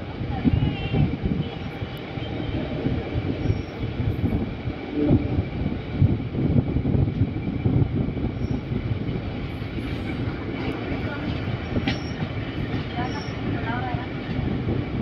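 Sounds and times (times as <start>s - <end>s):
train rumbling on track: 0.0s - 15.0s
wheels clattering on rails: 7.0s - 15.0s.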